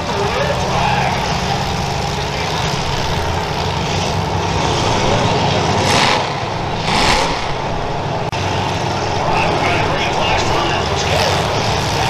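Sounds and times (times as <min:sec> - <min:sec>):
car engines droning: 0:00.0 - 0:12.0.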